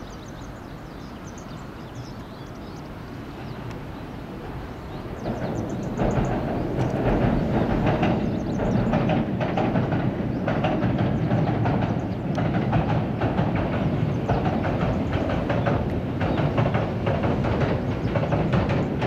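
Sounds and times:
train wheels rumbling on bridge: 0.0 - 19.0
wheel clacks: 5.2 - 19.0.

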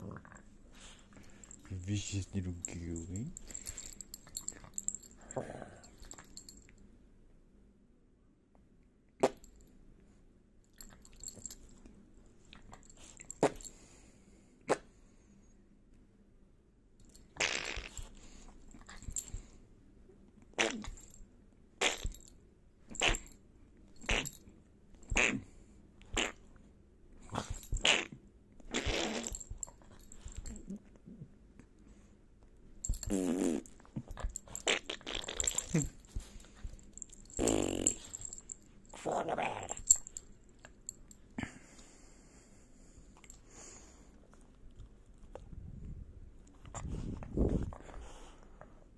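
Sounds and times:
small dog growling: 5.2 - 5.9, 27.2 - 29.4, 37.3 - 39.9.

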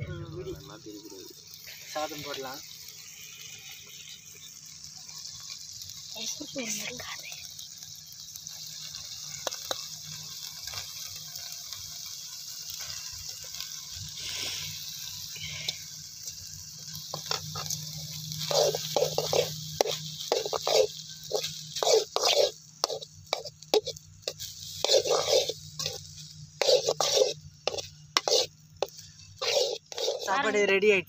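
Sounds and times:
steady hiss: 0.0 - 31.0
ladle scraping rice in pan: 16.8 - 30.6.

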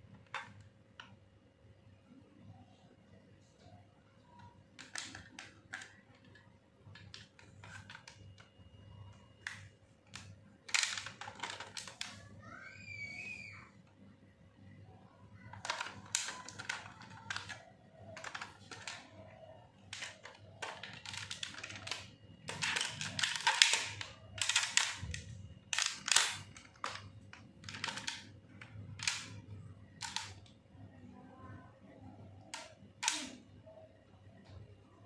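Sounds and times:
plastic toy clicks and rattles: 0.1 - 1.2, 4.4 - 12.5, 15.4 - 30.6, 31.8 - 33.8.

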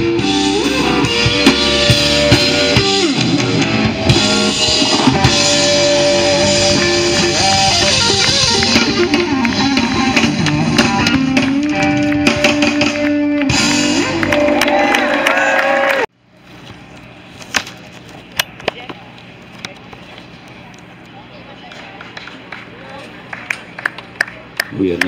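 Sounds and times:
drum kit: 0.0 - 14.9
electric guitar bending notes: 0.0 - 15.4.

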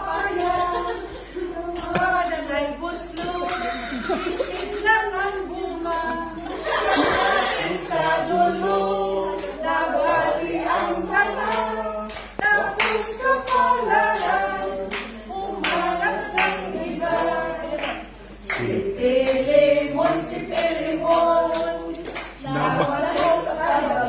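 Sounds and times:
women singing a cappella: 0.0 - 24.0
hand claps: 1.8 - 2.2, 11.4 - 23.9.

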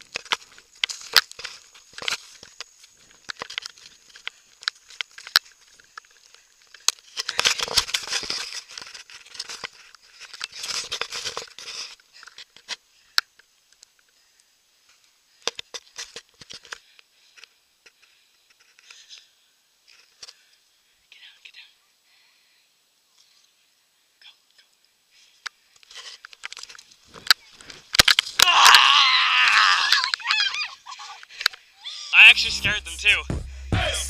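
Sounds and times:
grass and brush rustling: 0.0 - 13.1, 25.1 - 29.1.

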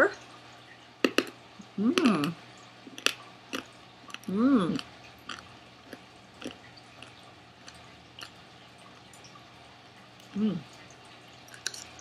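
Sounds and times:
person humming: 1.6 - 2.4, 10.3 - 10.7.

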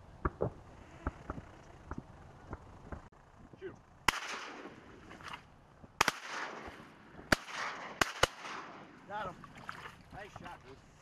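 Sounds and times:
shotgun shots with echo: 4.1 - 4.9, 6.0 - 9.0.

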